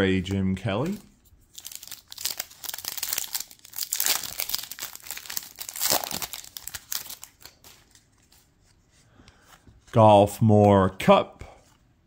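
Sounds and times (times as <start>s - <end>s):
foil wrapper crinkling and tearing: 1.5s - 8.0s.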